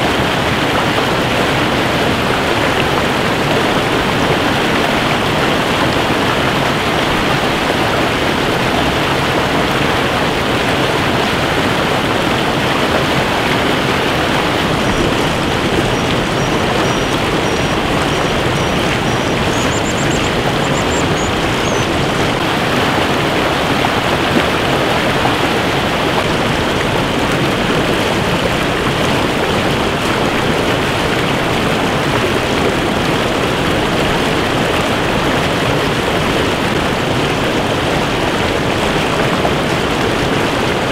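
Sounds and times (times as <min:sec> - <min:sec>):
river rushing over rocks: 0:00.0 - 0:40.9
young birds begging calls: 0:14.3 - 0:22.4.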